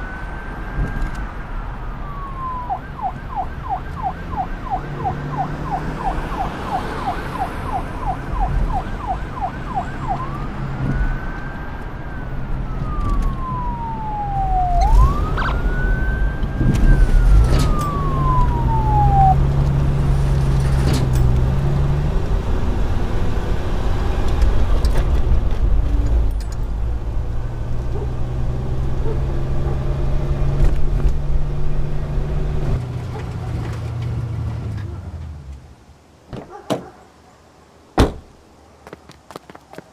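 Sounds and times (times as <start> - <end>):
police siren: 0.0 - 20.7.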